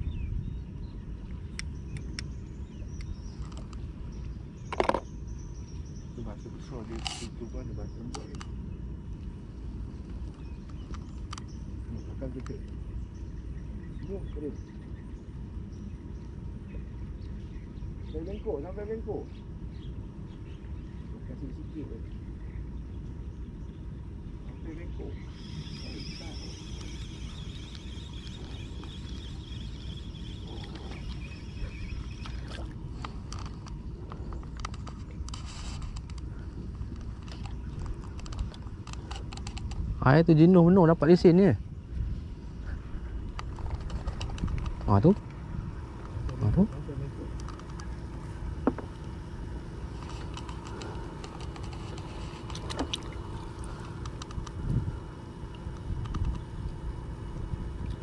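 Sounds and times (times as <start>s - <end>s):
steady low rumble: 0.0s - 58.0s
fishing reel being wound: 25.3s - 32.5s
small clicks and knocks: 32.3s - 36.3s, 36.9s - 39.8s, 47.4s - 47.9s, 55.7s - 56.5s.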